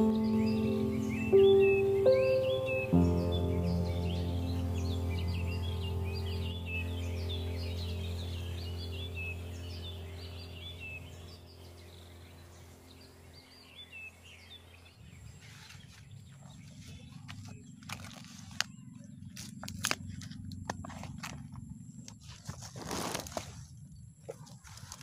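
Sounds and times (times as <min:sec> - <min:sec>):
low hum: 0:00.0 - 0:24.2
birds chirping: 0:00.0 - 0:25.0
leaf crinkling and rustling: 0:15.2 - 0:25.0
sharp clicks and crackles: 0:16.5 - 0:23.5.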